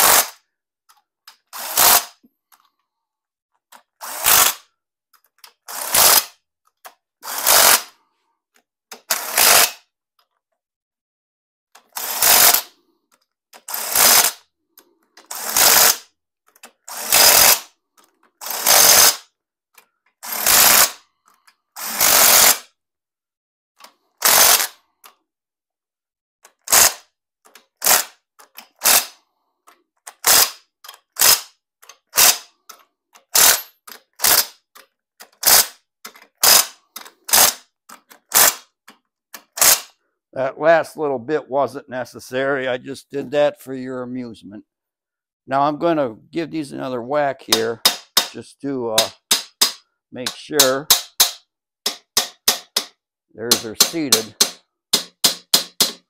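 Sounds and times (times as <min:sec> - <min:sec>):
impact driver hammering bolts: 0:30.1 - 0:38.6, 0:47.5 - 0:48.4, 0:49.0 - 0:56.0.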